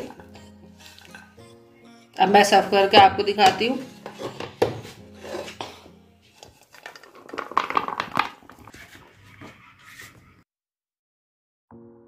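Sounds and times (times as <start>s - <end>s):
serving spoon scraping a pan: 3.6s - 7.2s, 8.5s - 10.4s.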